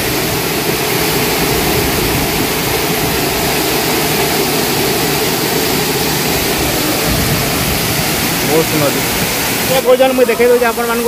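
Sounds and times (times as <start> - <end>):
waterfall roaring: 0.0 - 11.0.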